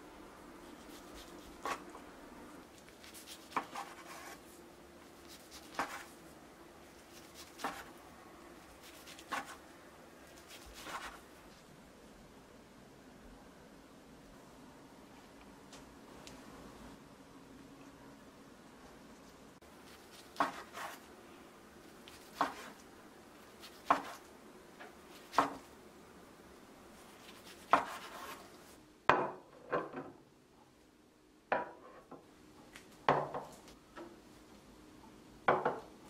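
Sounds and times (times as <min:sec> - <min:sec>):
knife slicing onto wooden cutting board: 0:20.1 - 0:21.0, 0:22.2 - 0:22.8, 0:27.3 - 0:28.4.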